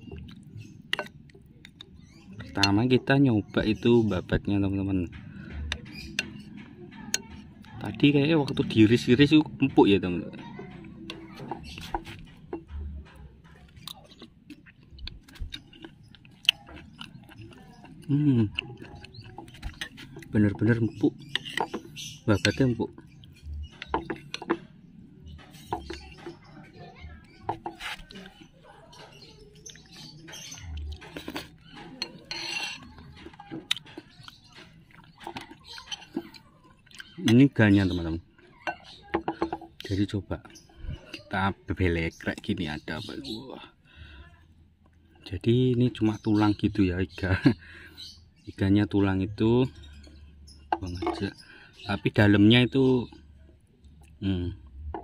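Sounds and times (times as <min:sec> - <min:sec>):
person chewing: 0:13.6 - 0:21.8, 0:29.6 - 0:37.2.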